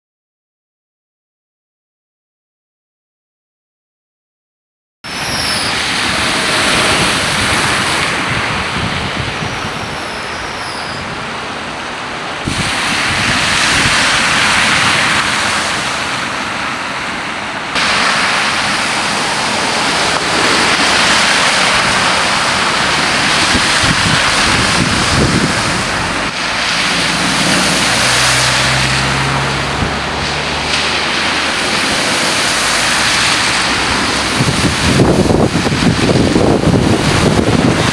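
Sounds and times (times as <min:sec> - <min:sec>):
car engines: 0:05.1 - 0:37.9
tyres splashing through water: 0:05.1 - 0:37.9.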